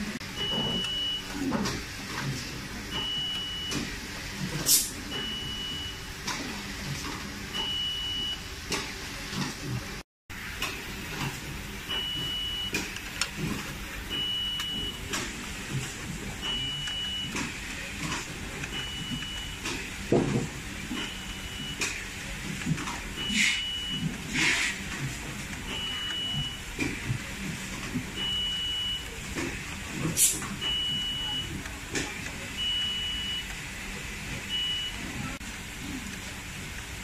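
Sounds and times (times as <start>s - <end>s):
brief scrape: 24.3s - 24.8s.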